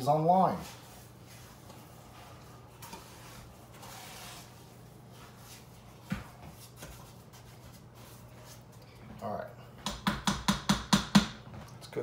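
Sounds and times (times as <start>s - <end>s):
spoon stirring and scraping paste: 0.6s - 6.0s.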